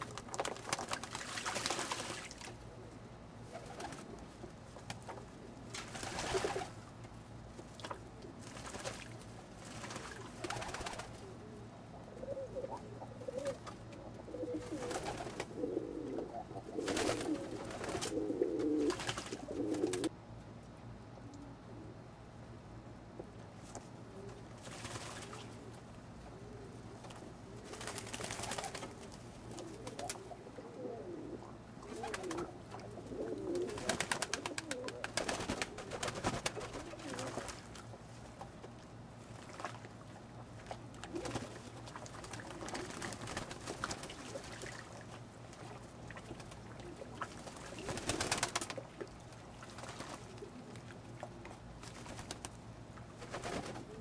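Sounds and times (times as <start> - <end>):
splashing and wing-flapping: 0.0 - 2.6, 3.5 - 5.1, 5.7 - 6.8, 7.7 - 11.4, 14.5 - 20.1, 24.5 - 25.8, 27.0 - 30.4, 31.8 - 54.0
pigeons cooing: 10.0 - 20.1, 25.3 - 37.5, 41.0 - 43.3, 53.3 - 54.0.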